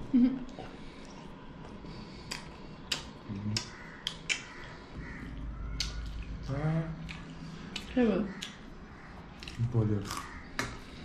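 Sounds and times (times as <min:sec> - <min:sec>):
chewing: 0:09.3 - 0:11.0.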